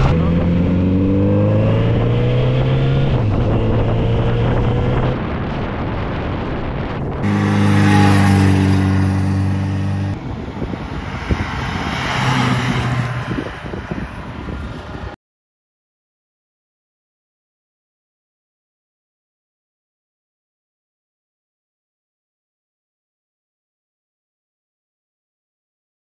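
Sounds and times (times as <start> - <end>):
wind noise: 0.0 - 15.2
motorcycle engine running: 7.1 - 10.2.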